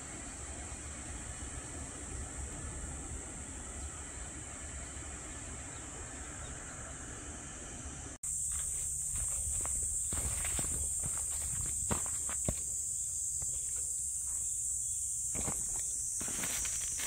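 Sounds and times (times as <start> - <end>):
high-pitched insect chorus: 0.0 - 17.0
footsteps on forest trail: 8.2 - 17.0.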